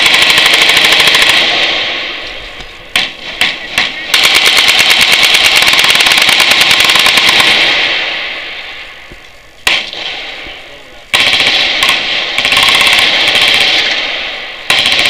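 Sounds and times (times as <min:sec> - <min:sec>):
machine guns firing bursts: 0:00.0 - 0:02.0, 0:02.9 - 0:08.2, 0:11.1 - 0:15.0.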